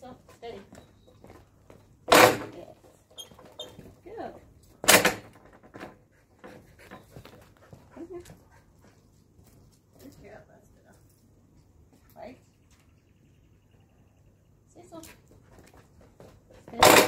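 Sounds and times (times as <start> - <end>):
seesaw board banging on concrete: 2.1 - 2.6, 4.8 - 6.0, 16.6 - 17.0.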